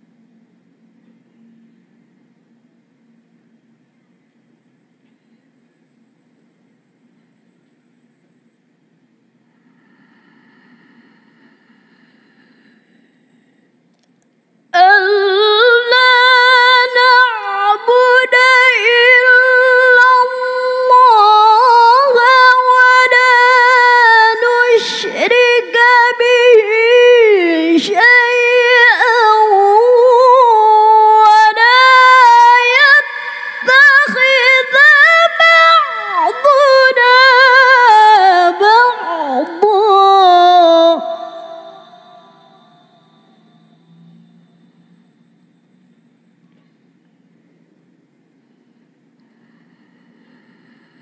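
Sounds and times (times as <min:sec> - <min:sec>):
woman chanting melodically: 0:14.8 - 0:43.8.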